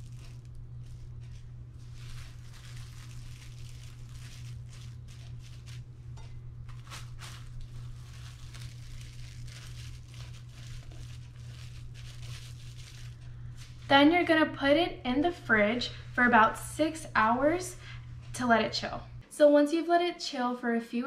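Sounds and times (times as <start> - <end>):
plastic wrap crinkling: 0.0 - 13.9
steady low hum: 0.0 - 19.3.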